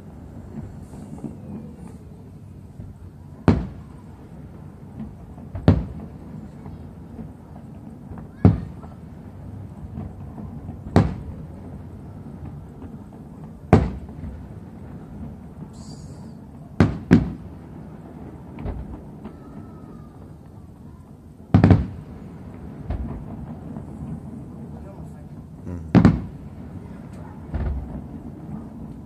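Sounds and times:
fireworks bangs: 0:00.0 - 0:29.0
faint firework pops: 0:02.8 - 0:09.0, 0:09.9 - 0:11.8, 0:12.4 - 0:20.6, 0:21.5 - 0:24.2, 0:25.9 - 0:29.0.

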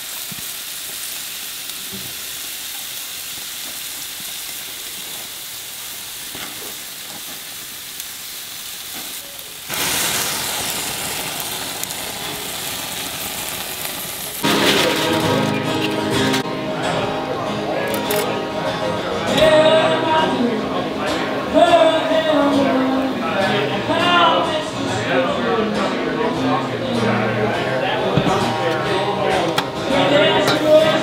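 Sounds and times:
steaks sizzling on grill: 0:00.0 - 0:18.4, 0:19.1 - 0:31.0
music: 0:14.4 - 0:31.0.

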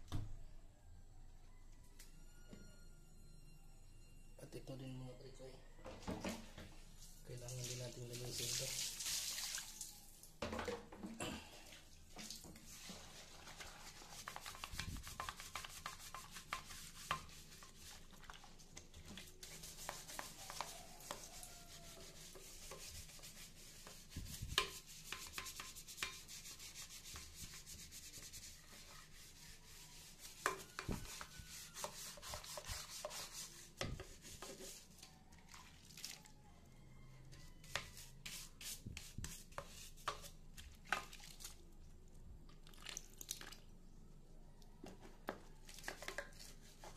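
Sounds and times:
scrubbing strokes on sink: 0:12.1 - 0:36.2, 0:37.6 - 0:41.6, 0:45.7 - 0:46.9.

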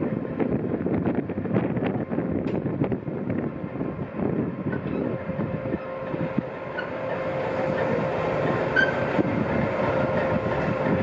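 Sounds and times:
diesel locomotive rolling past: 0:00.0 - 0:11.0
short high squeak: 0:04.7 - 0:05.2, 0:08.7 - 0:09.1.

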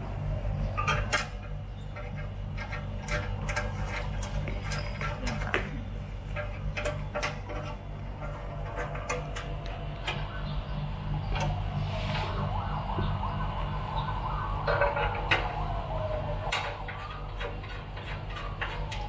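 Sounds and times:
steady low hum: 0:00.0 - 0:19.0
clicks and taps of metal parts: 0:00.8 - 0:10.2.

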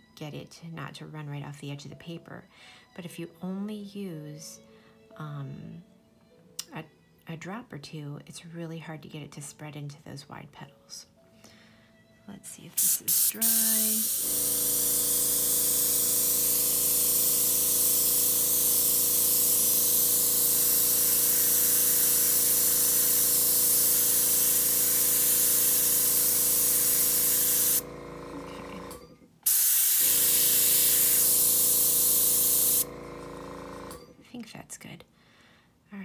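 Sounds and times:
airbrush air hiss: 0:12.8 - 0:27.8, 0:29.5 - 0:32.8
air compressor motor humming: 0:12.8 - 0:34.1.

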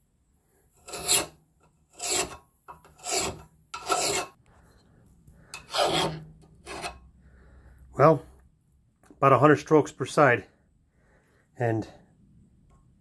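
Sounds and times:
hand file rasping on steel blade: 0:00.8 - 0:04.4, 0:05.5 - 0:07.0.

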